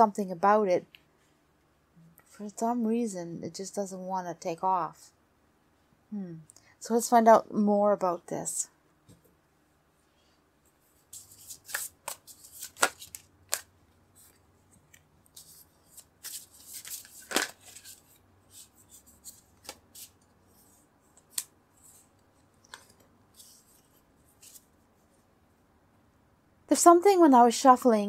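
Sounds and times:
cards shuffling and snapping: 0:11.1 - 0:20.2, 0:21.2 - 0:22.0.

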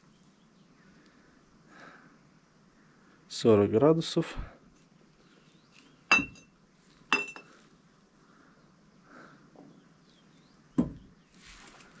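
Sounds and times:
glass bottles clinking: 0:06.1 - 0:06.5, 0:07.1 - 0:07.6
dull knock: 0:10.8 - 0:11.1.

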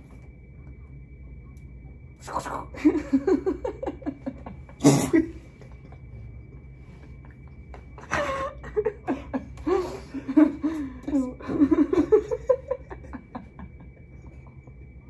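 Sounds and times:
people laughing: 0:02.8 - 0:14.8
sharp cough: 0:04.8 - 0:05.4.

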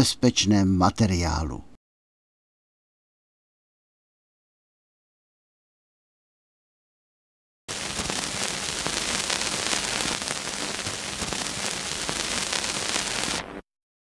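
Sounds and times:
crackling hiss: 0:07.7 - 0:13.6.

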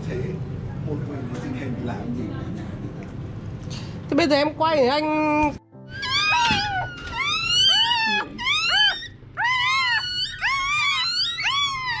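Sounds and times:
puppies squealing: 0:05.9 - 0:12.0.

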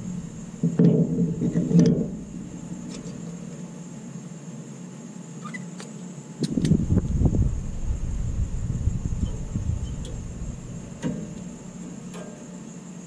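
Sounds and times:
low rumble: 0:00.0 - 0:00.6, 0:06.6 - 0:11.0.

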